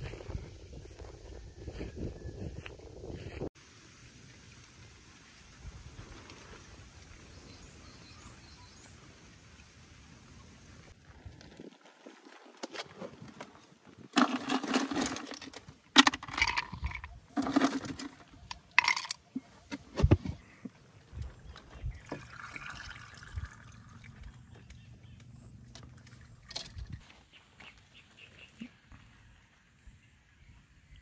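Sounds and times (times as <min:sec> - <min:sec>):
knocking and scraping plastic cooler: 0:17.4 - 0:18.2
water pouring into a cup: 0:22.0 - 0:24.2.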